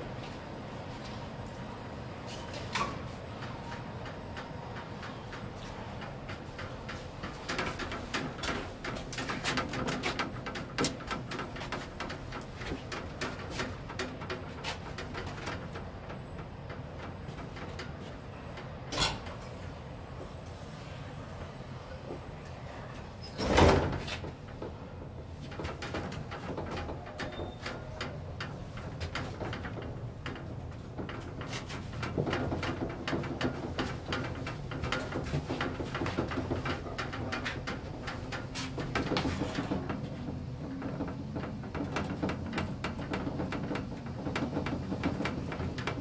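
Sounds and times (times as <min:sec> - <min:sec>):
elevator running hum: 0:00.0 - 0:46.0
elevator humming: 0:24.2 - 0:46.0.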